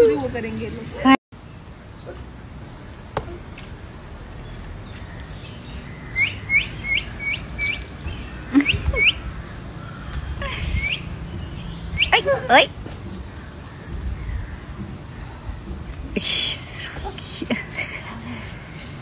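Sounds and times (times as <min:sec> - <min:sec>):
small bird chirping: 0:04.3 - 0:15.6.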